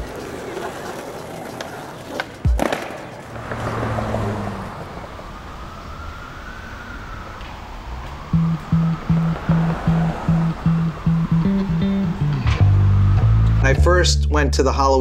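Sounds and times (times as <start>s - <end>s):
city traffic noise: 0.0s - 14.0s
skateboard snapping and clattering: 0.3s - 3.3s
siren rising and falling: 3.3s - 13.6s.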